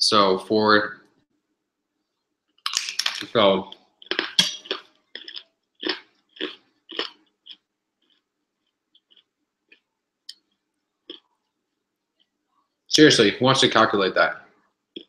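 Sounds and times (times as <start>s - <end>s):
chewing: 2.6s - 11.6s.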